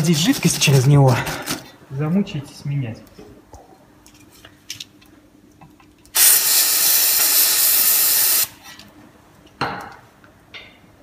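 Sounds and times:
aerosol spray can hissing: 6.2 - 8.6.

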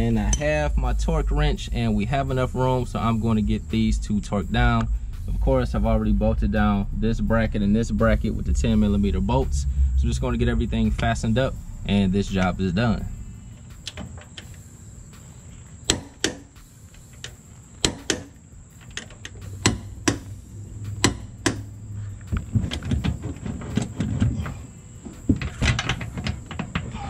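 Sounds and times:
wrenches clicking and knocking on bolts: 15.9 - 20.3, 25.3 - 27.0.

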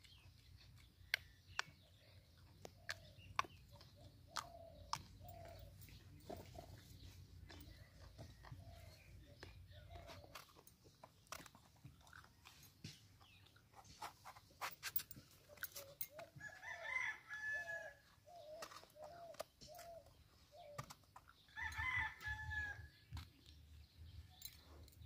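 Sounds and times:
rooster crowing: 16.4 - 18.0.

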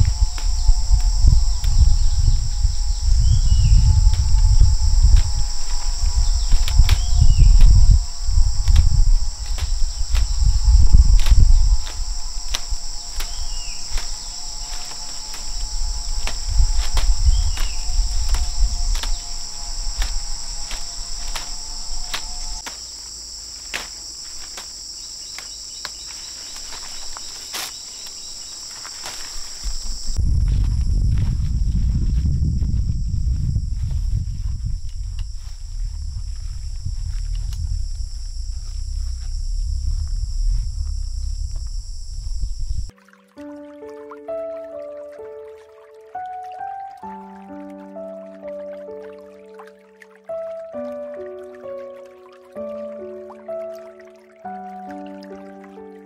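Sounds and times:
low rumbling noise: 0.0 - 22.6, 29.3 - 42.9
insects droning: 0.0 - 56.0.

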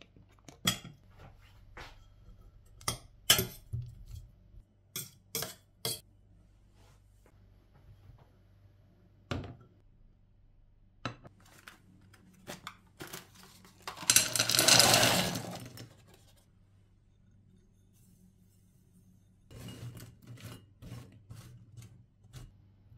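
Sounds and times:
frozen berries rattling in a pan: 13.8 - 15.9.

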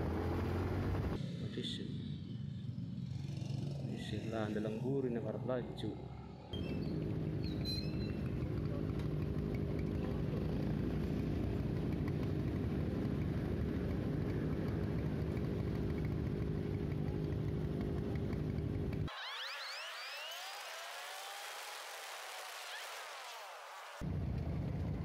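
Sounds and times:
motorcycle engines idling: 0.0 - 19.1.

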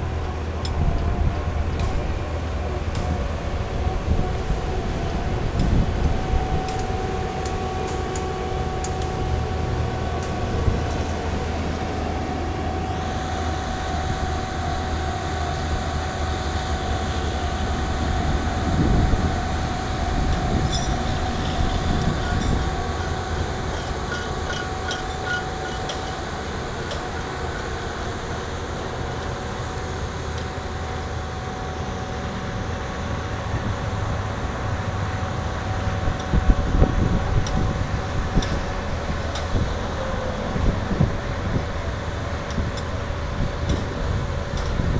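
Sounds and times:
engine drone: 0.0 - 44.9
thin high whine: 5.2 - 34.4.

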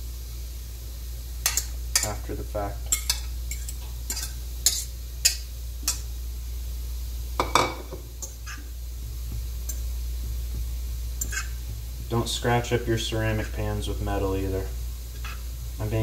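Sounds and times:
butter sizzling: 0.0 - 16.0
fork scraping ceramic pan: 3.0 - 6.0, 11.2 - 11.6.

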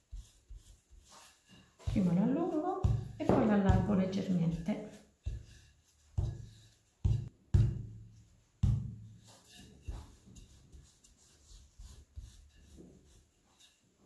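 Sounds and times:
rolling pin thumping dough: 0.0 - 10.5.

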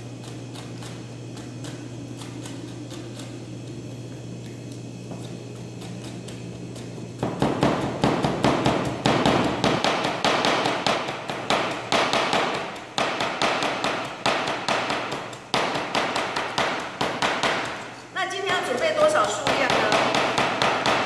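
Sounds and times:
knife chopping on plastic board: 7.2 - 17.9, 19.2 - 21.0.

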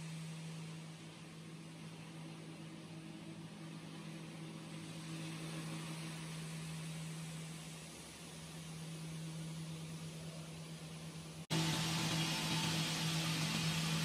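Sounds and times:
stone-cutting machine motor hum: 0.0 - 14.0
water spraying on stone: 11.5 - 14.0.

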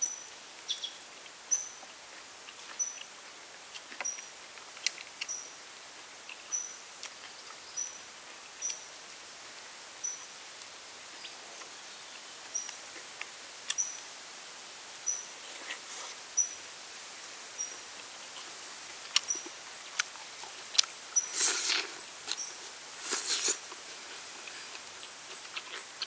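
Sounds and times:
bird chirping: 0.0 - 1.8, 18.8 - 26.0.

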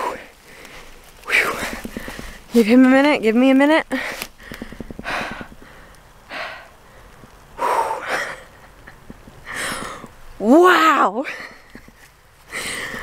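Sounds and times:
woman breathing hard: 3.9 - 8.6, 9.4 - 10.1, 12.5 - 13.0.

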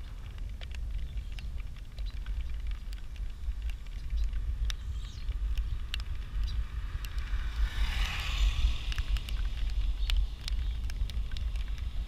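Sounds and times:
bike clicks and rattles: 0.0 - 12.0
wind rumbling on microphone: 0.0 - 12.0.

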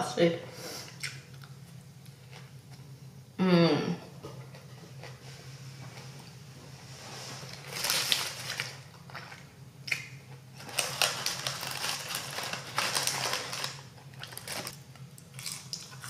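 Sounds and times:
steady low hum: 0.0 - 16.0
paper wrapper crinkling: 7.4 - 9.4, 10.5 - 15.0.

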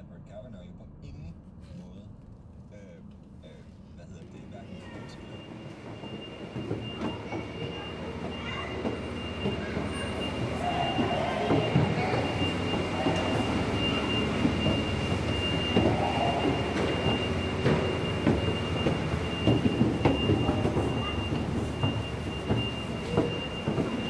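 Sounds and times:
low machinery rumble: 0.0 - 24.0
footsteps on metal stairs: 4.8 - 24.0.

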